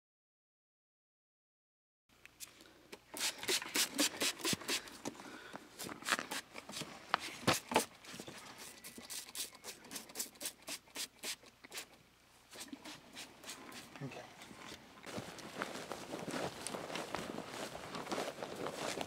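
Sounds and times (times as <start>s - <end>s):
spray bottle squirts: 3.1s - 4.9s, 8.6s - 13.9s
cloth rustling: 14.6s - 19.0s.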